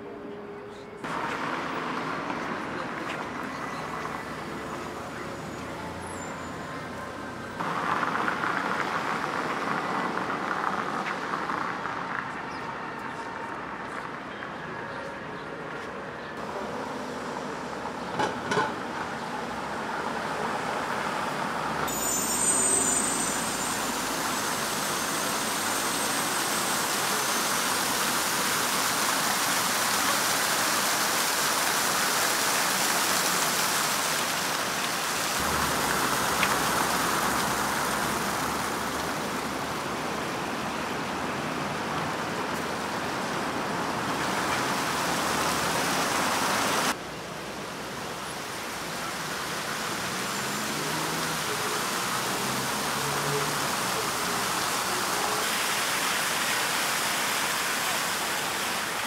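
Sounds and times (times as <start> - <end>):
fountain water jets splashing: 1.0 - 59.0.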